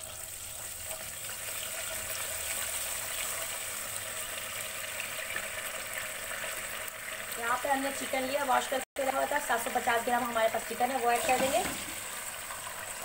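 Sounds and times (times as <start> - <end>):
paste sizzling in hot oil: 0.0 - 13.0.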